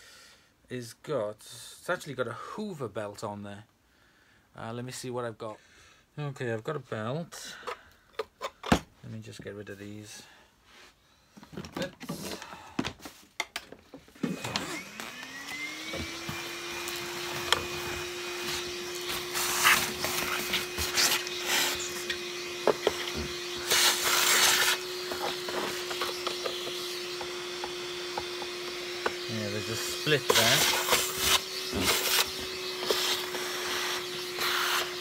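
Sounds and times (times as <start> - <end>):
vacuum cleaner motor running: 14.2 - 35.0.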